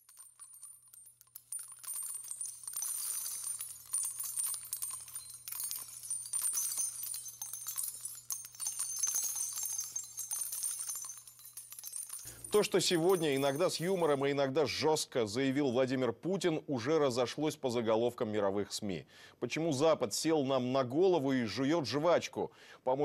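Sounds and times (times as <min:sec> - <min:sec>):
small bells jingling: 0:00.0 - 0:14.5.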